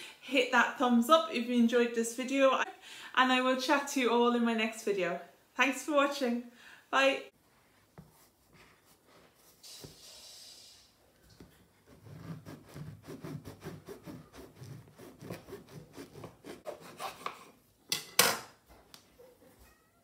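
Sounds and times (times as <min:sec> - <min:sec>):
knife sawing through bread crust: 0:11.8 - 0:17.6.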